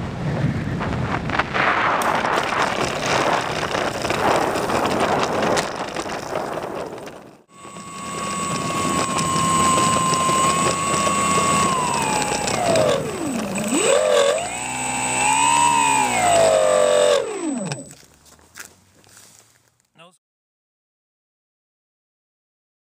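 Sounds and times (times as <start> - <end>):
electric motor and propeller whining: 0.5 - 18.2
rough rattly noise: 0.9 - 18.2.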